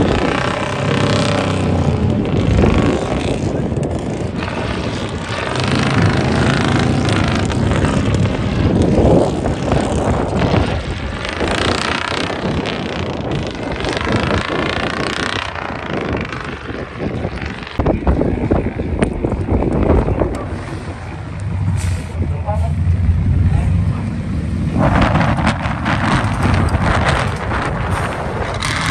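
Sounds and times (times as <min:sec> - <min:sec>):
truck engine revving: 0:00.0 - 0:28.9.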